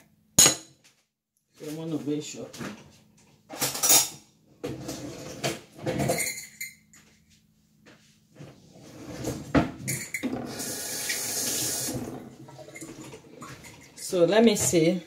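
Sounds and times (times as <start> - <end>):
dishes clattering on a counter: 0.0 - 1.0, 3.5 - 7.2, 9.3 - 10.6
tap water running: 10.2 - 14.9.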